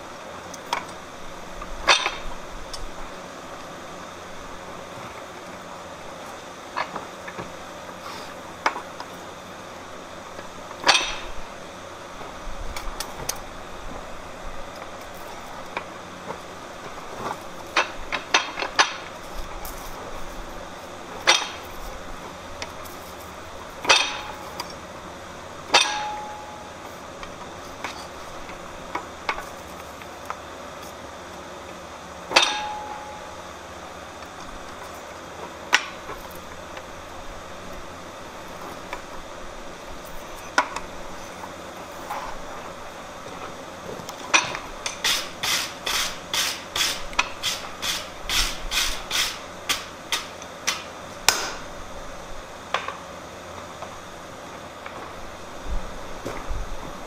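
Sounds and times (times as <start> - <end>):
metal clanks with ring: 1.8 - 2.2, 10.8 - 11.4, 23.8 - 24.7, 25.7 - 26.8, 32.3 - 33.4
light metal-on-metal strikes: 23.8 - 24.6, 25.7 - 26.7, 32.3 - 33.4.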